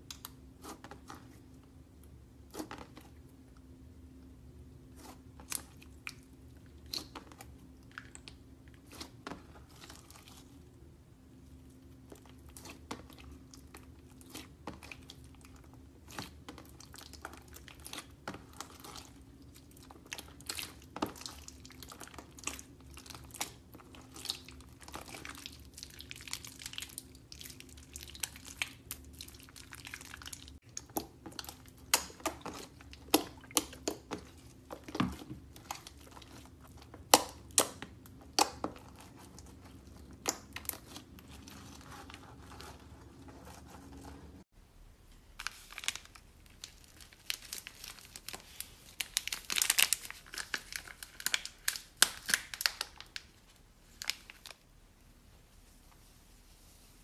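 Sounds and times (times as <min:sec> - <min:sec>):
hands squishing sticky slime: 0:04.8 - 0:10.8, 0:11.6 - 0:44.4.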